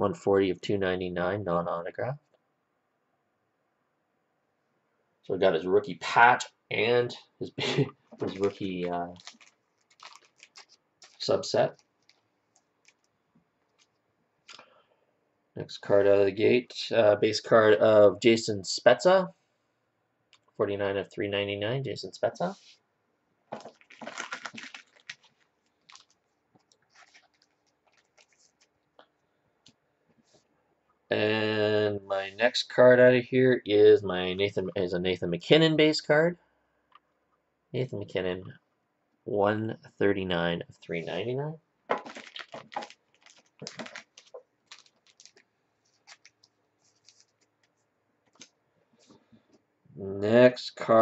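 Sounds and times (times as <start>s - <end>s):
trading cards rustling and sliding: 8.2s - 12.2s, 26.7s - 28.7s, 42.0s - 49.1s.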